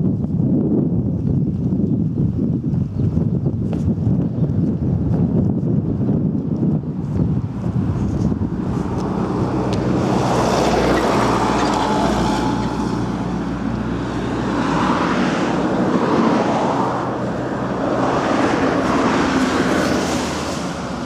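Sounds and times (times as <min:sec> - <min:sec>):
wind buffeting microphone: 0:00.0 - 0:21.0
cars passing: 0:06.9 - 0:21.0.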